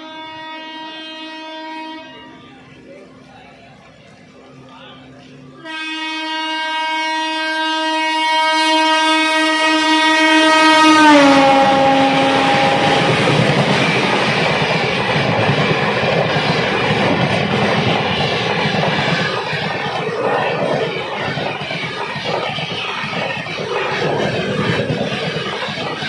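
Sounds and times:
locomotive horn blast: 0.0s - 2.6s, 5.6s - 14.6s
train coaches passing: 0.0s - 26.0s.

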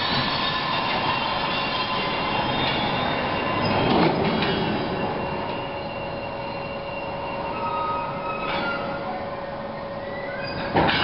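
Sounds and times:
freight wagons rumbling over rails: 0.0s - 11.0s
wheel squeal: 0.0s - 11.0s.

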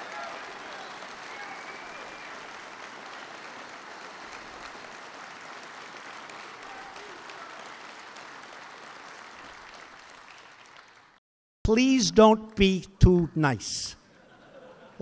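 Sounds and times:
crowd applauding: 0.0s - 11.2s.

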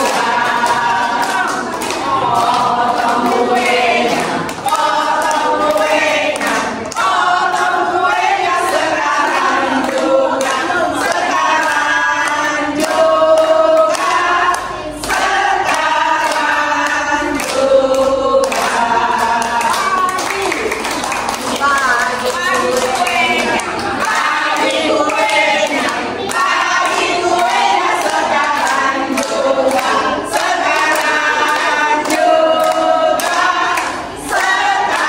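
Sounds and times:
women singing in chorus: 0.0s - 35.0s.

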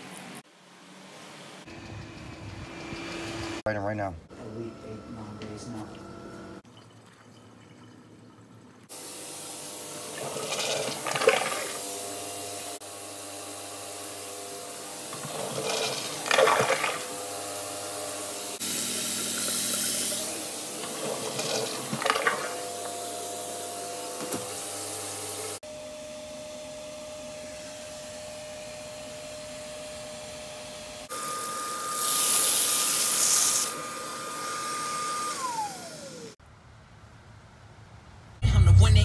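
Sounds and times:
toilet flushing: 9.9s - 12.2s, 15.0s - 17.7s, 18.4s - 23.4s
water rushing through pipes: 10.1s - 11.9s, 15.2s - 17.2s, 18.6s - 22.7s.

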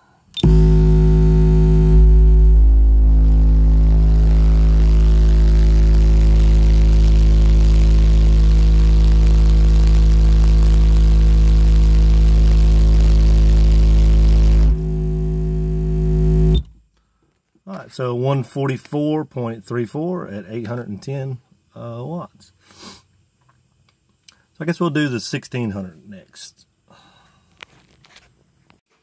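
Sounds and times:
deep bass test tone: 0.4s - 16.7s.

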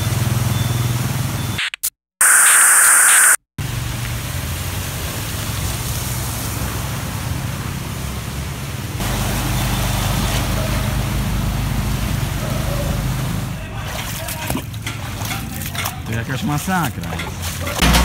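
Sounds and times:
hiss of water spray: 3.6s - 8.4s
motorbike engine hum: 3.6s - 13.8s.

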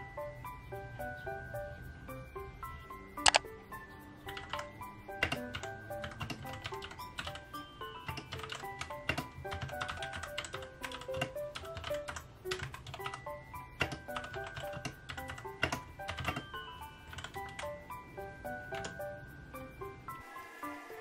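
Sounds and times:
light background music: 0.0s - 21.0s
mechanical keyboard clicking: 3.2s - 3.4s, 4.3s - 7.4s, 8.0s - 13.2s, 13.8s - 16.5s.

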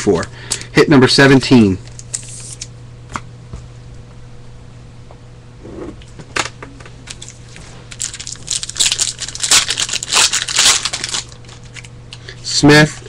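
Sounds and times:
wrapper tearing and crinkling: 7.1s - 11.9s.

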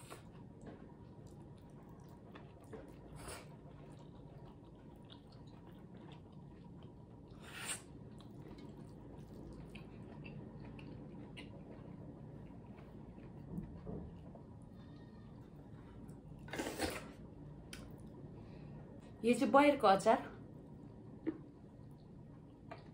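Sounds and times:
soft chewing: 0.0s - 19.2s, 20.5s - 22.9s.

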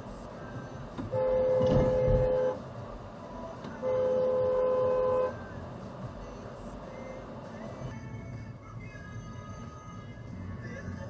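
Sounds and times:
car horn blasts: 1.1s - 2.6s, 3.8s - 5.4s.

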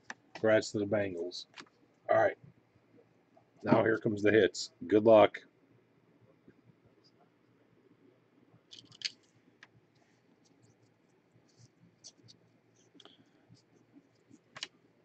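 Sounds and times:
trading cards clicking and scraping: 10.0s - 14.8s.

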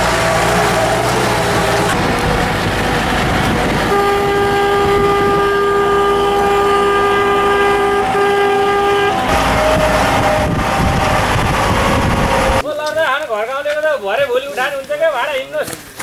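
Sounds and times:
engine and wind rumble: 0.0s - 12.6s
vehicle horn blast: 3.8s - 11.3s.

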